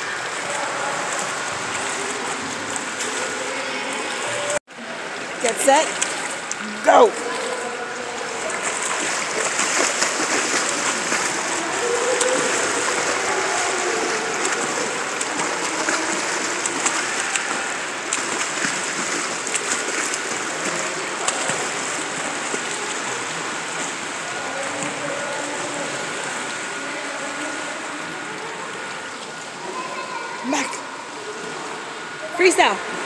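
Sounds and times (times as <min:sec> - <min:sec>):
child splashing in pool water: 0:07.0 - 0:23.5.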